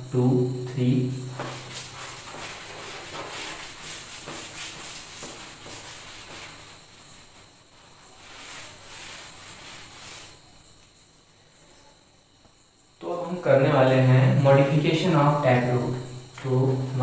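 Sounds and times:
duster rubbing a blackboard: 0:01.1 - 0:10.9.

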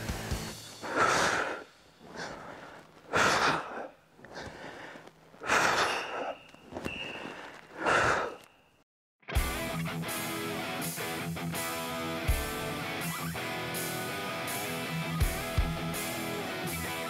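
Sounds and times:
quiet breaths: 0:00.1 - 0:08.7
person exhaling hard: 0:00.8 - 0:06.4, 0:07.2 - 0:08.5.

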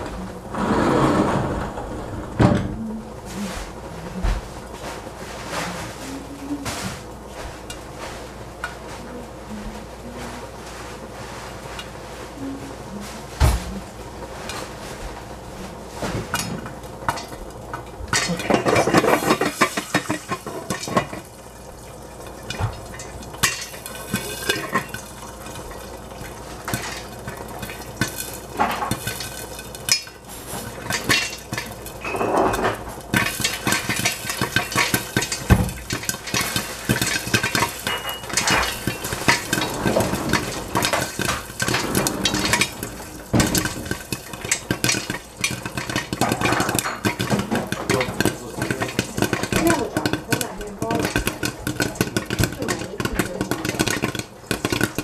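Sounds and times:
oil frying sizzle: 0:03.2 - 0:55.0
popcorn popping against metal lid: 0:16.3 - 0:55.0.

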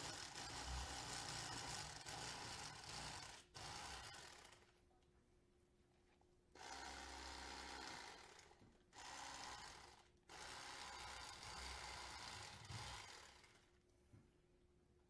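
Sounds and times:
electric knife motor cutting fish: 0:06.6 - 0:08.4.

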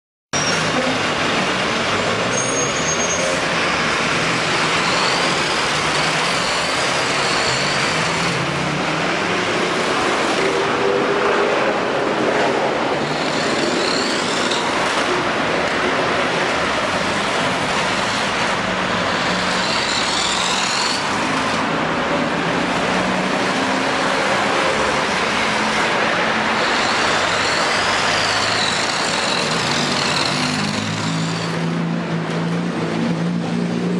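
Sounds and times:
steady rushing noise: 0:03.5 - 0:33.9
toy car motor whine: 0:19.2 - 0:21.5, 0:26.6 - 0:31.6.

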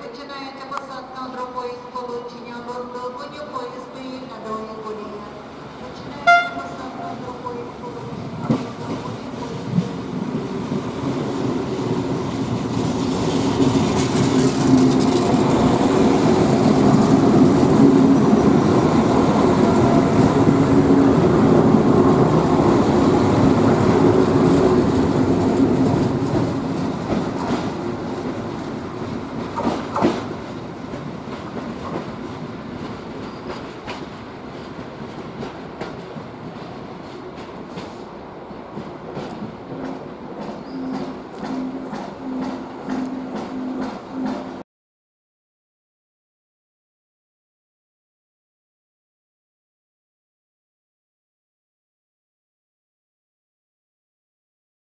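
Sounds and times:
diesel train passing: 0:00.2 - 0:44.6
wheels clacking over rail joints: 0:08.0 - 0:20.6, 0:22.7 - 0:38.1, 0:38.7 - 0:44.6.

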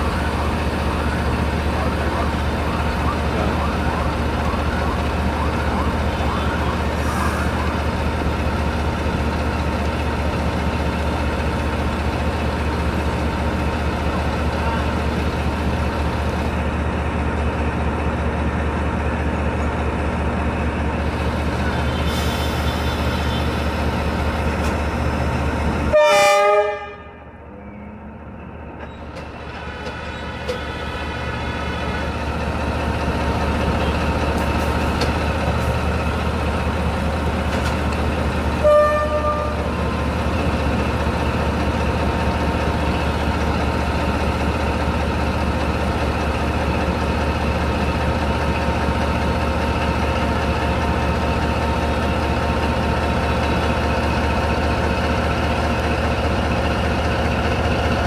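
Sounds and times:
diesel locomotive engine running: 0:00.0 - 0:58.0
locomotive horn toots: 0:25.9 - 0:28.3, 0:38.6 - 0:40.0.

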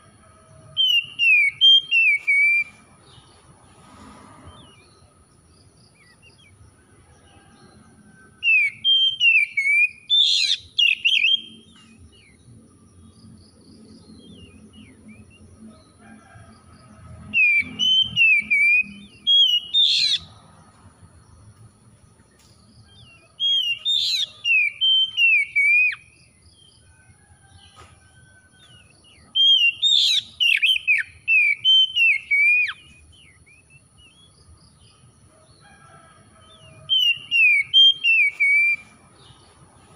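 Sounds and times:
bird singing whistled song: 0:00.8 - 0:02.8, 0:08.4 - 0:12.3, 0:17.3 - 0:20.3, 0:22.9 - 0:26.2, 0:29.1 - 0:34.3, 0:36.9 - 0:39.0.

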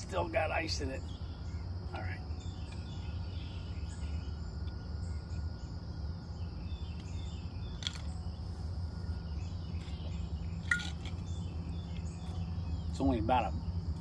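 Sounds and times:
crickets chirring: 0:00.0 - 0:14.0
low outdoor rumble: 0:00.0 - 0:14.0
ice clinking in bottle: 0:10.7 - 0:11.1.

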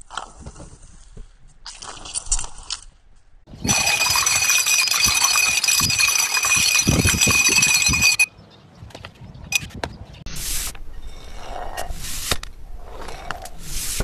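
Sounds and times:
glasses clinking and clattering: 0:03.6 - 0:08.3.

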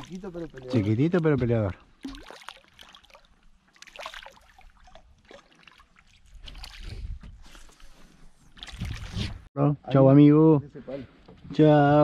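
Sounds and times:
fish splashing at water surface: 0:02.0 - 0:07.0.

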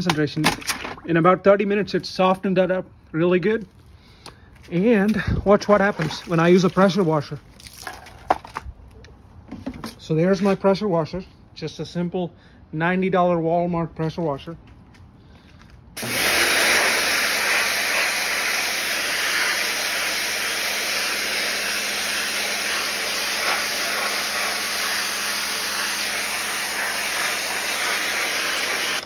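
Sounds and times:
pressure washer jet hissing: 0:16.0 - 0:29.0
pump motor humming: 0:16.0 - 0:29.0.

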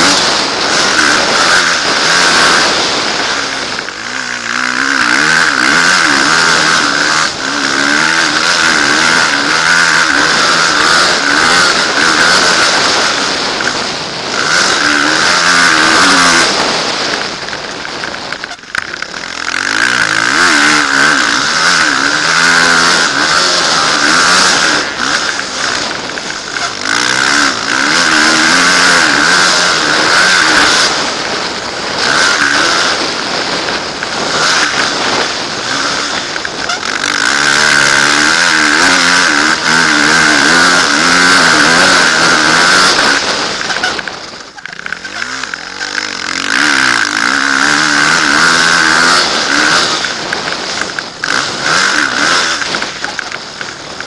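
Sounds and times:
dirt bike engine revving: 0:00.0 - 0:54.0
loud rushing noise: 0:00.0 - 0:54.0.

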